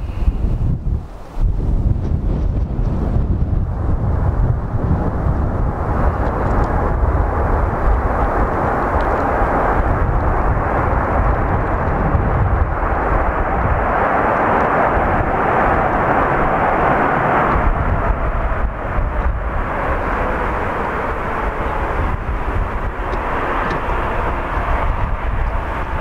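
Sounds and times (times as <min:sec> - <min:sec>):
jet engine roar: 0:00.0 - 0:26.0.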